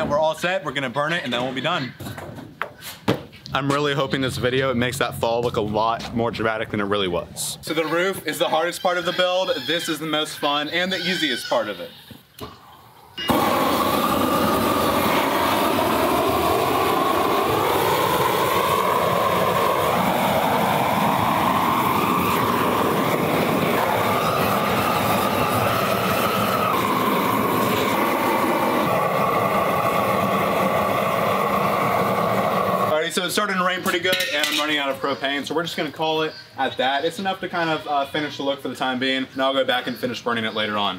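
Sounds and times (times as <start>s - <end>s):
propane torch flame rushing: 13.2s - 33.1s.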